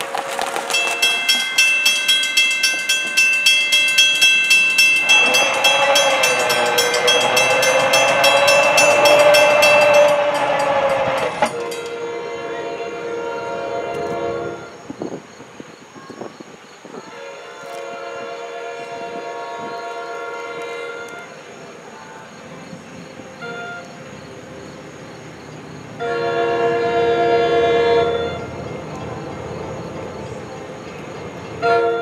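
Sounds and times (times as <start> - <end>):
crossing warning bell ringing: 0.0 - 14.8, 26.0 - 32.0
train horn blast: 4.8 - 14.8, 17.0 - 22.3, 23.4 - 24.0, 26.0 - 29.0, 31.6 - 32.0.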